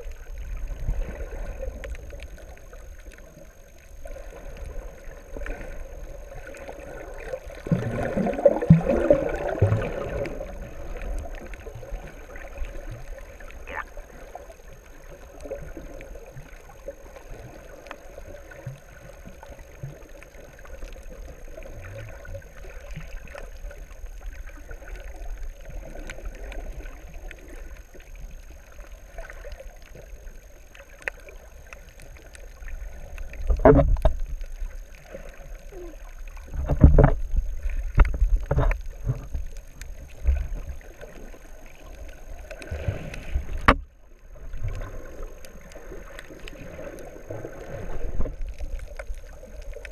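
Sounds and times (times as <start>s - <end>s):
bubbling gurgle: 0.0s - 49.9s
faint scattered ticks: 0.0s - 49.9s
muffled underwater water noise: 0.0s - 49.9s.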